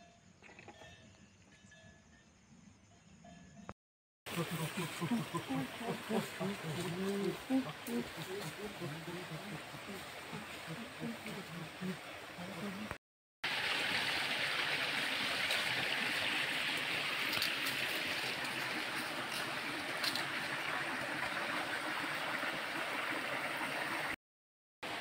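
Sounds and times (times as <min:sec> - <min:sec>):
stream flowing: 0:04.3 - 0:24.2.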